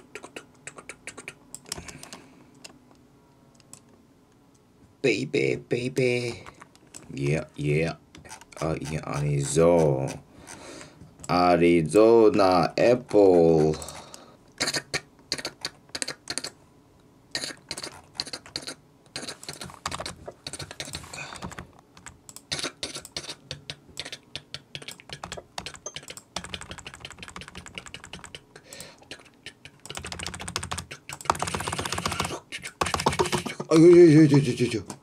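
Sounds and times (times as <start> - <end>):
typing on computer keyboard: 24.0 - 34.0.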